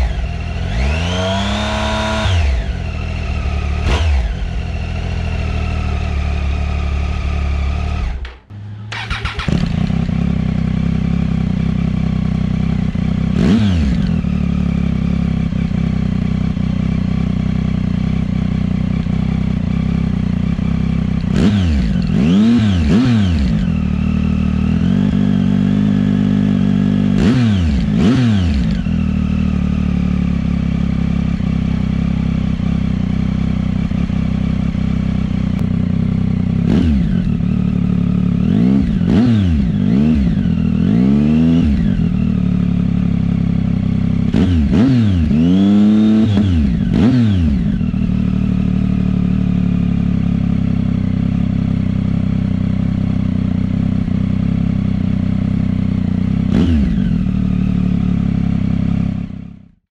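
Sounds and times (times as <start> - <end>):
motorcycle engine idling and revving: 0.0 - 59.9.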